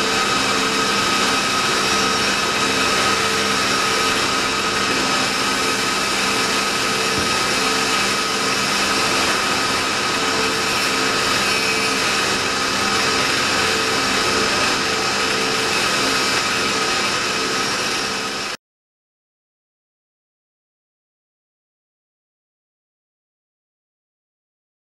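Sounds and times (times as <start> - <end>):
lathe machine whine: 0.0 - 18.6.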